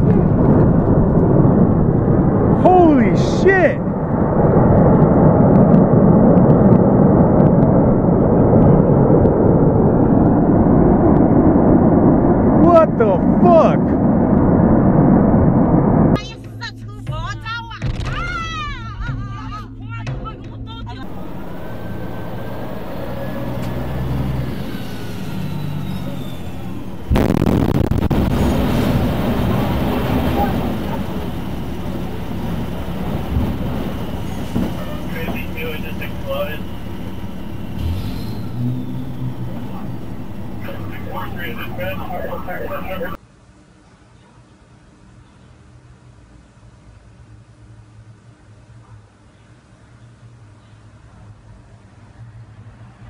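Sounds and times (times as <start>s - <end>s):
fire roaring: 0.0s - 16.2s, 21.0s - 43.2s
heavy rumble: 0.0s - 16.2s, 21.0s - 43.2s
low drone: 0.0s - 16.2s, 21.0s - 43.2s
loud explosion blast: 21.0s - 43.2s.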